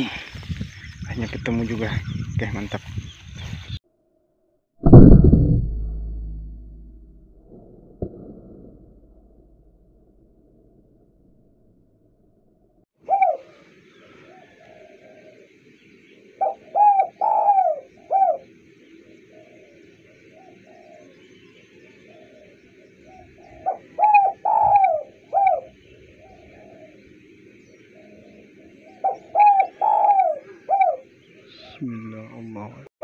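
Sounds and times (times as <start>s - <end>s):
dove cooing: 13.0s - 15.5s, 16.1s - 32.2s.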